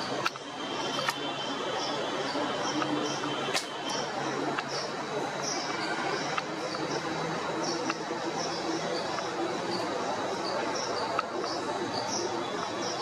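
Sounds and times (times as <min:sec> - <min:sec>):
high insect drone: 0:00.0 - 0:13.0
insects chirping: 0:00.0 - 0:13.0
sharp clicks: 0:03.5 - 0:04.0.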